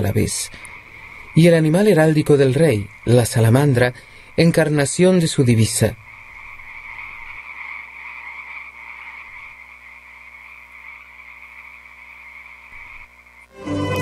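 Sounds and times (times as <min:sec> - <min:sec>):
animal chorus of high-pitched calls: 0:05.4 - 0:13.4.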